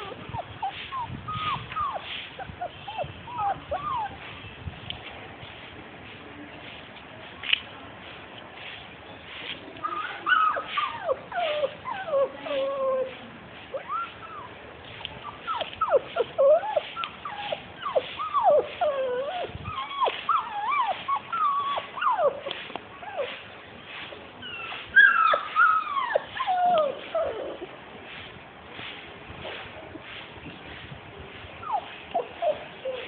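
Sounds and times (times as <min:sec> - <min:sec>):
puppies whining and yelping: 0:00.0 - 0:04.2, 0:09.8 - 0:14.6, 0:15.2 - 0:23.4, 0:24.4 - 0:27.7, 0:31.6 - 0:33.0.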